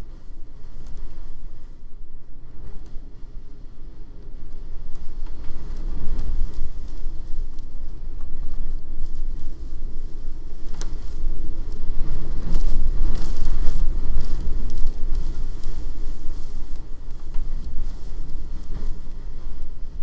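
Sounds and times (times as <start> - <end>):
wind buffeting microphone: 0.0 - 20.0
snow pattering against camera: 4.8 - 20.0.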